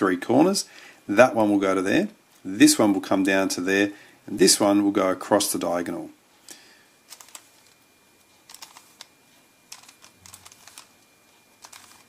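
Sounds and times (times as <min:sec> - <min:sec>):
plastic puzzle cube clicking: 0:08.5 - 0:09.1, 0:09.7 - 0:10.9, 0:11.6 - 0:12.0.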